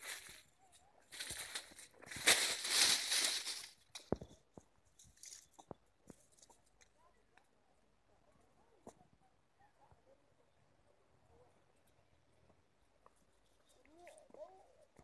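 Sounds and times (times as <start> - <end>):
leaves and twigs rustling: 0.0 - 6.9.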